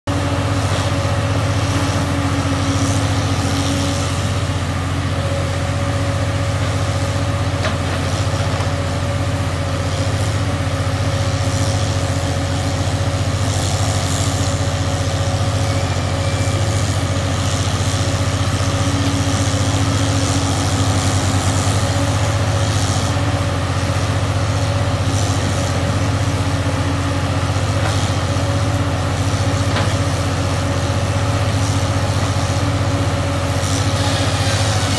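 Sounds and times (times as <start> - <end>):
diesel engine under load: 0.1 - 34.9
hydraulic whine: 0.1 - 34.9.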